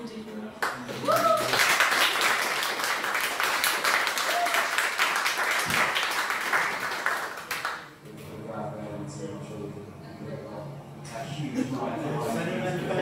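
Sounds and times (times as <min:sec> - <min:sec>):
audience applauding: 0:00.6 - 0:07.9.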